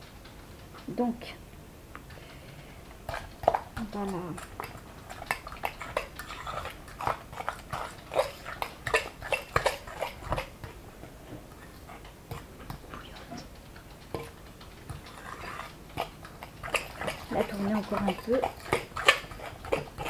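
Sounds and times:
whisk scraping glass bowl: 14.9s - 20.0s.

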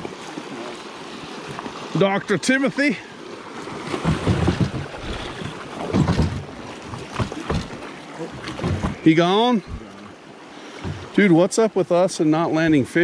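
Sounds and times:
river water rushing and splashing: 0.0s - 13.0s
knocks against boat hull: 3.9s - 9.9s, 10.8s - 11.2s.

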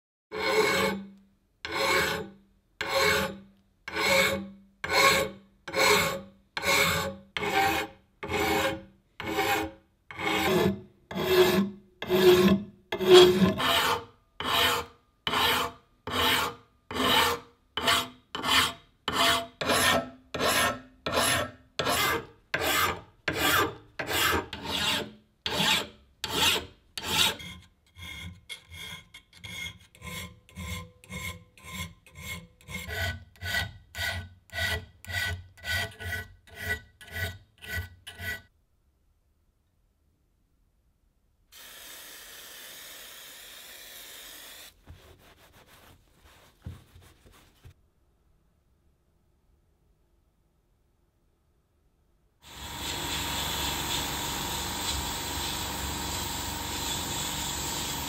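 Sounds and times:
file rasping on metal: 0.3s - 1.1s, 1.7s - 38.5s, 52.5s - 58.0s.

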